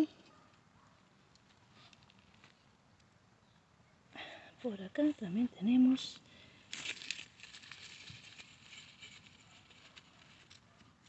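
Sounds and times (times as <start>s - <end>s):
dry leaves crackling: 5.2s - 10.7s
hand digging in dry soil: 6.7s - 11.0s.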